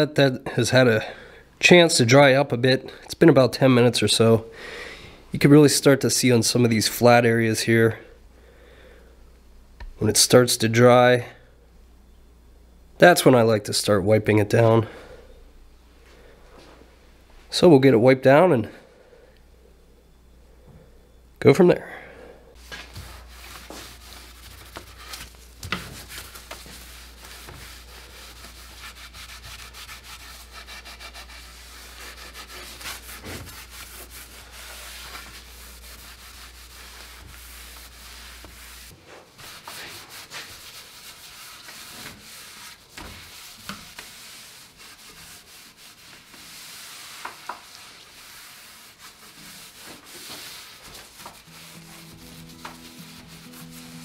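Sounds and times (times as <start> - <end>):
cloth rag rubbing wood: 22.6 - 54.0.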